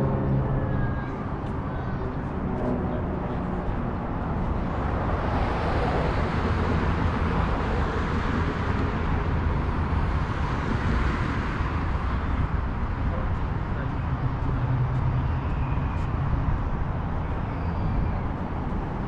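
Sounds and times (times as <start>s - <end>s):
road traffic rumble: 0.0s - 19.0s.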